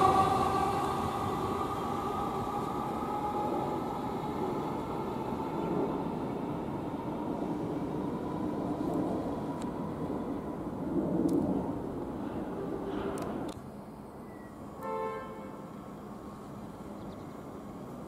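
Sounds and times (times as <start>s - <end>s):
electric train motor whine: 0.0s - 7.0s.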